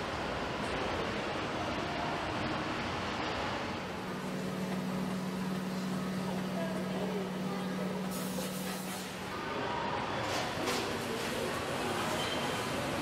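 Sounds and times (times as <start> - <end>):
low machine hum: 0.0 - 9.3.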